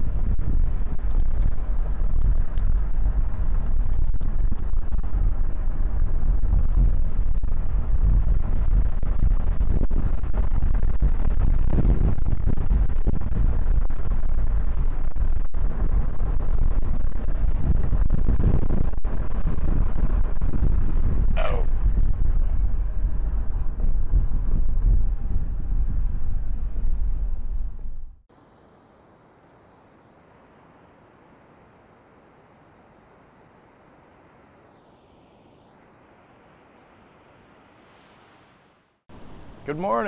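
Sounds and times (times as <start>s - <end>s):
vehicle engine and tyre rumble: 0.0s - 28.2s.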